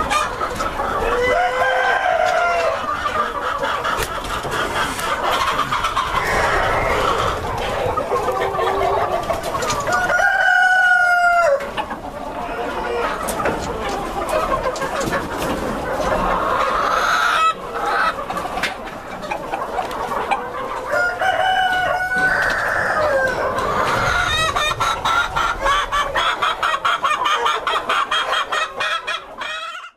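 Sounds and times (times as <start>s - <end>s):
chickens clucking: 0.0s - 29.9s
rooster crowing: 1.2s - 2.8s, 6.2s - 7.2s, 9.9s - 11.6s, 20.9s - 23.4s.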